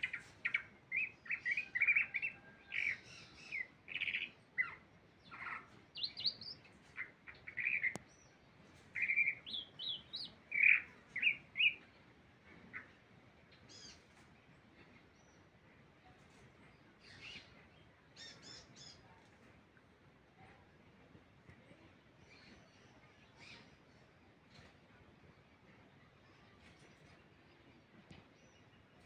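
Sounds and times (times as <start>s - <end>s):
songbird chirping and whistling: 0.0s - 8.0s, 8.9s - 11.9s.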